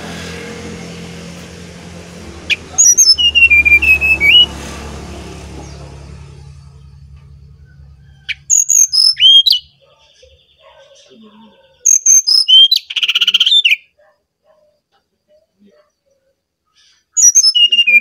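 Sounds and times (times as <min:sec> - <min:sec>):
bird buzzy trill: 0:01.0 - 0:10.8, 0:17.2 - 0:18.0
bird whistled song: 0:02.5 - 0:04.5, 0:08.1 - 0:10.7, 0:11.7 - 0:13.9, 0:17.1 - 0:18.0.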